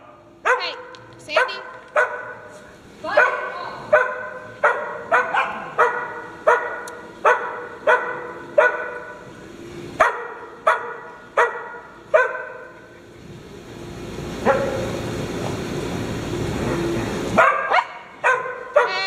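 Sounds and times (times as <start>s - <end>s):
dog barking: 0.4s - 9.2s, 10.0s - 12.8s, 14.4s - 14.9s, 17.4s - 19.0s.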